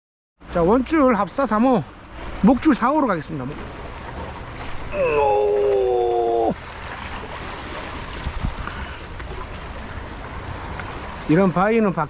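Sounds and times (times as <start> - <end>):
waves splashing on rocks: 0.5 - 12.0.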